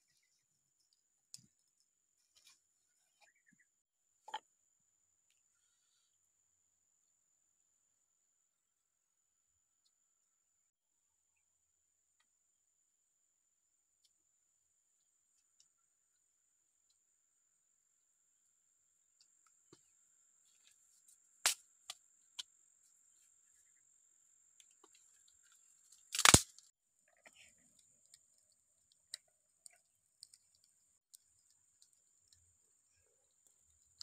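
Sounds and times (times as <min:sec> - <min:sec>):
loud wood crack: 0:26.1 - 0:26.6.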